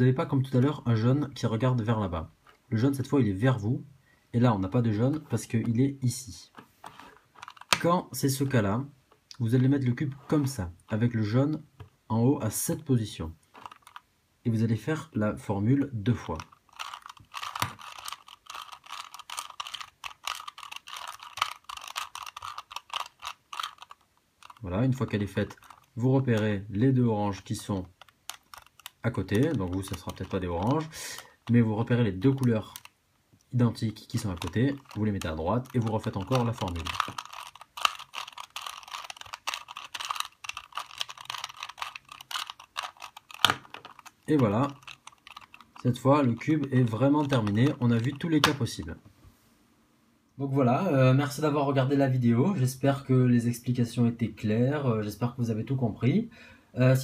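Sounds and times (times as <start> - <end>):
puzzle cube clicking and scraping: 6.5 - 8.6, 10.0 - 12.0, 13.4 - 14.1, 15.8 - 33.0, 33.6 - 48.9.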